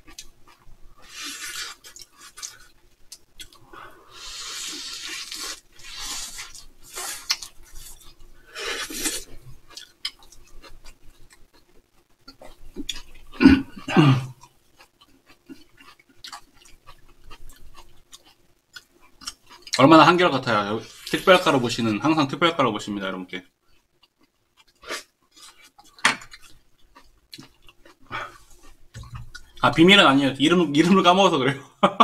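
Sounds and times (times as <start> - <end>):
chewing food: 0.0 - 3.6, 4.6 - 19.8, 23.7 - 29.7
long breathy hisses: 3.9 - 5.0.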